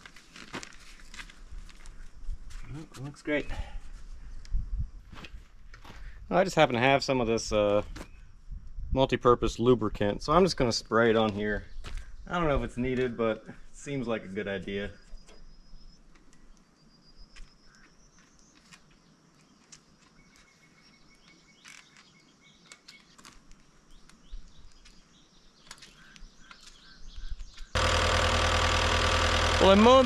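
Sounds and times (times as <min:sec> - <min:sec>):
faint bird calls: 0:14.9 - 0:23.2, 0:24.0 - 0:27.8
diesel engine running: 0:27.8 - 0:30.0.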